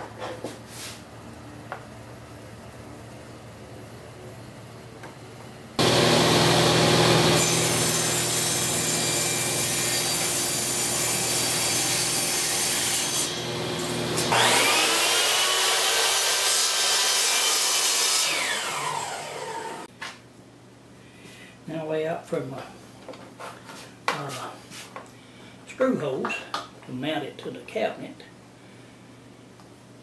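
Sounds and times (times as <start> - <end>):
miter saw whine: 5.8 - 8.8, 13.3 - 16.2, 18.2 - 19.9
table saw ripping wood: 5.8 - 19.9.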